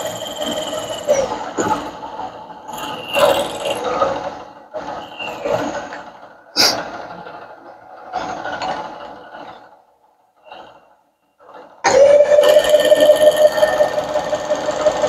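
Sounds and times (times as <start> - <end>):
machine whine: 0.0 - 6.5, 10.4 - 15.0.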